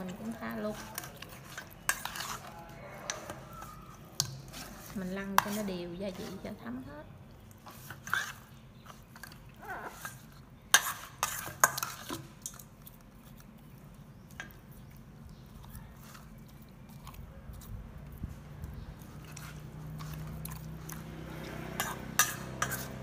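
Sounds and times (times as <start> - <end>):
metal spoon clinking on steel bowl: 0.0 - 5.7, 10.0 - 12.7, 21.7 - 23.0.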